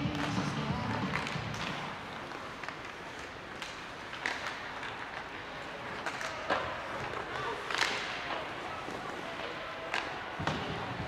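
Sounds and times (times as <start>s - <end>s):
steady arena hum: 0.0s - 11.0s
skates and sticks scraping ice: 0.1s - 11.0s.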